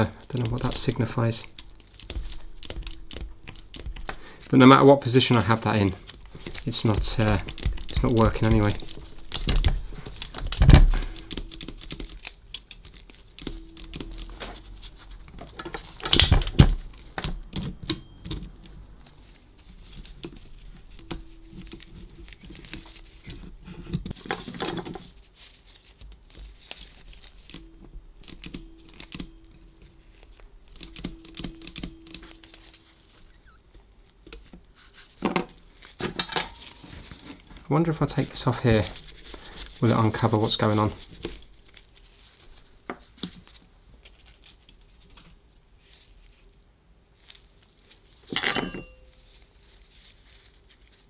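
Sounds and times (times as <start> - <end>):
mechanical calculator clicking: 0.0 - 4.5, 5.2 - 14.4.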